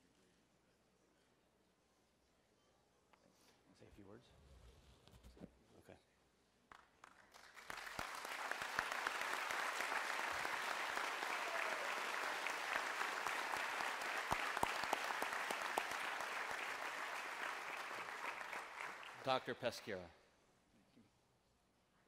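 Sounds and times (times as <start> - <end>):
audience applause: 7.1 - 19.5.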